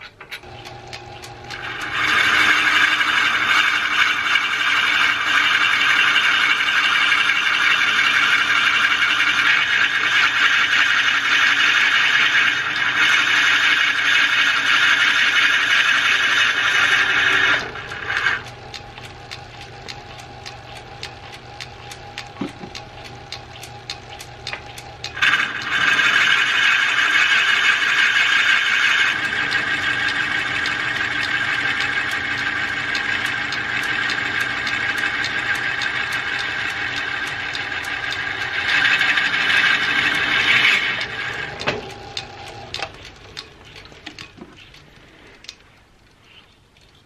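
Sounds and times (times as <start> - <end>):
cutting tool shaving wood: 0.4 - 45.0
lathe humming and ticking: 0.4 - 45.6.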